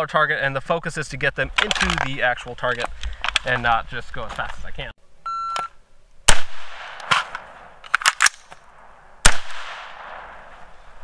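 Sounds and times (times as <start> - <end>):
electronic beep: 5.3 - 5.7
rifle shots: 6.3 - 10.7.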